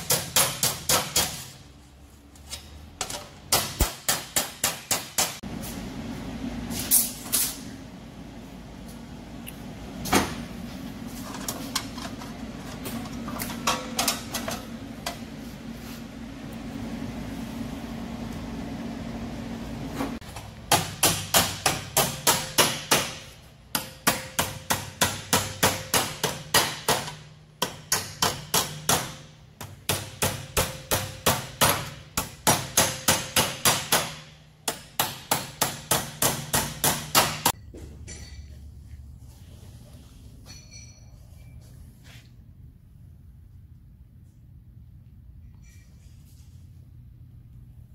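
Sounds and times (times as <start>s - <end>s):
hammer striking sheet metal: 0.0s - 1.6s, 3.0s - 5.4s, 20.7s - 38.5s.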